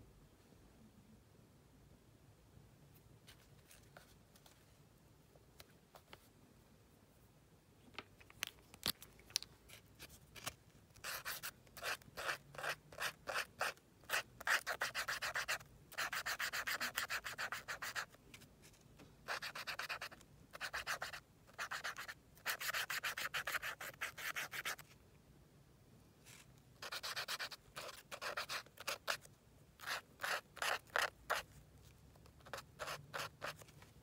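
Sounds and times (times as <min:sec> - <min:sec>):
marker scribbling on paper: 0:11.0 - 0:18.1, 0:19.3 - 0:24.8, 0:26.8 - 0:29.2, 0:29.8 - 0:31.4, 0:32.4 - 0:33.6.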